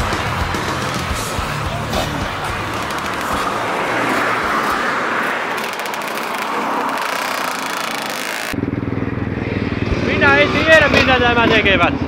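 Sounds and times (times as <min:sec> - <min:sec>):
distant motorcycles rushing: 0:00.0 - 0:12.0.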